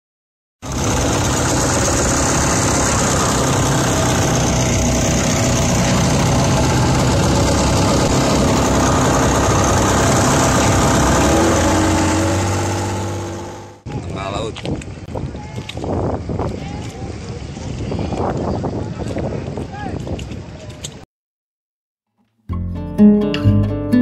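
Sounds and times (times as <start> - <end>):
motorboat engine running: 0.6 - 14.0
wind: 0.6 - 21.1.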